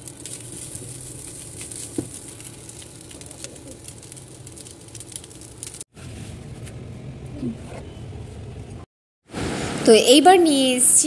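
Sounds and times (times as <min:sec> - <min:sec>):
light sizzle: 0:00.0 - 0:06.4.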